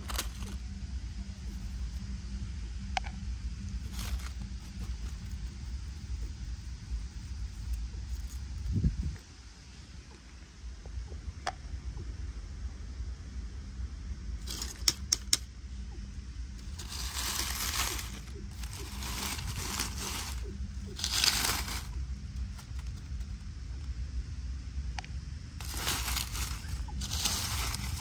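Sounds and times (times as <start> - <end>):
leaves and plastic rustling: 0.0 - 0.6, 3.7 - 5.4, 7.4 - 9.3, 14.4 - 15.0, 16.6 - 23.4, 25.6 - 28.0
low steady hum: 0.0 - 28.0.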